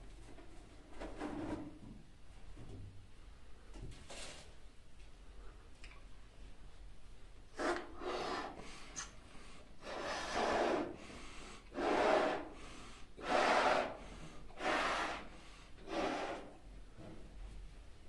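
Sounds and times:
person blowing up a balloon: 7.6s - 9.1s, 9.8s - 11.0s, 11.7s - 12.6s, 13.2s - 16.5s.

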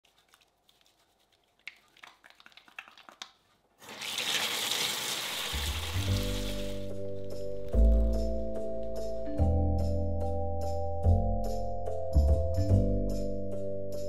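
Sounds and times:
soapy hands squelching: 0.0s - 8.2s
tap water pouring into sink: 3.8s - 6.9s
background music: 5.4s - 14.0s.

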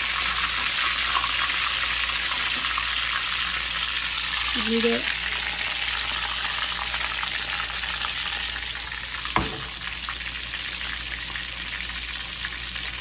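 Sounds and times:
chicken frying in hot oil: 0.0s - 13.0s.

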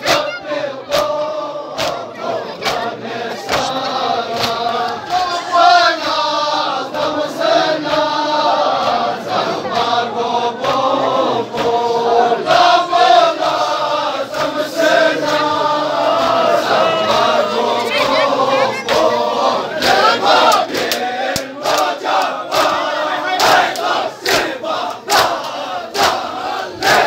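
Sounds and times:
hands slapping chests: 0.0s - 5.3s, 19.8s - 26.3s
men chanting together: 0.0s - 27.0s.

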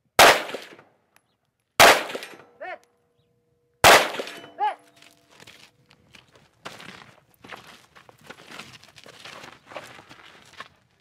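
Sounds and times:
pistol shots: 0.2s - 0.8s, 1.8s - 2.6s, 3.8s - 4.6s
steel target ringing clang: 3.8s - 4.8s.

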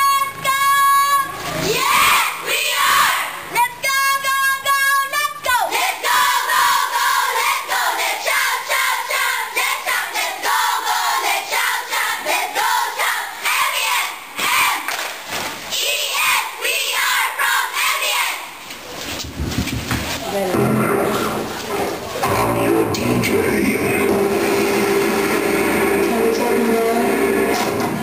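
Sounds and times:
girls singing and chanting: 0.0s - 15.0s, 15.7s - 18.7s.

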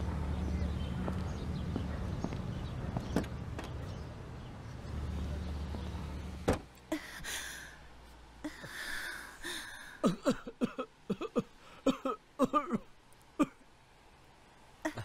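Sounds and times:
person breathing: 6.9s - 10.0s
man coughing: 10.0s - 13.6s.

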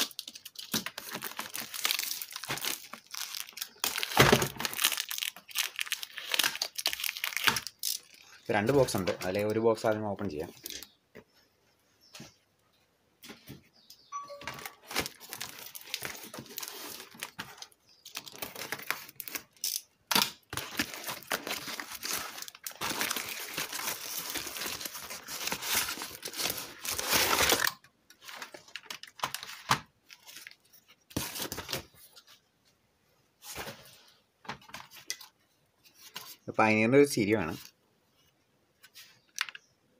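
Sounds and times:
cardboard parcel tearing: 0.0s - 8.8s, 14.8s - 30.5s
wrapping crinkling: 0.0s - 10.9s, 14.6s - 32.2s.

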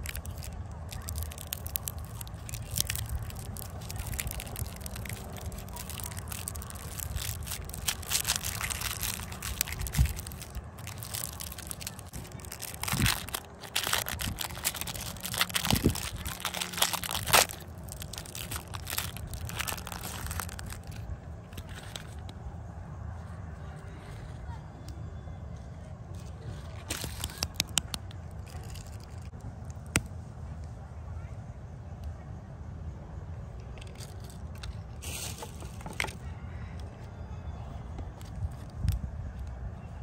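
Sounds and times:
plastic wrapper crinkling: 0.0s - 22.2s, 26.8s - 29.3s.

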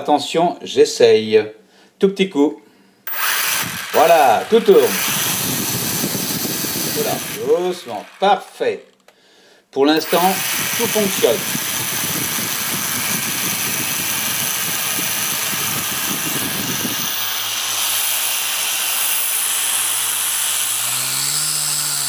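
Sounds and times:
quadcopter motors whirring: 3.1s - 8.4s, 10.0s - 22.0s.

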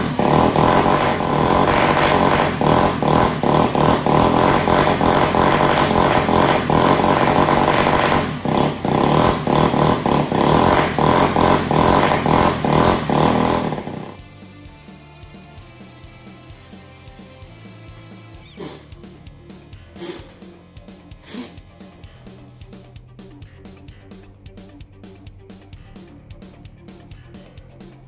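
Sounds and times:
model car engine revving: 0.0s - 14.2s.

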